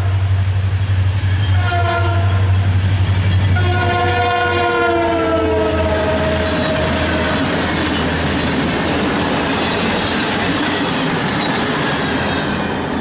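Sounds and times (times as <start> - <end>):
freight train wheels rumbling: 0.0 - 13.0
train horn: 1.4 - 2.7, 3.5 - 7.6.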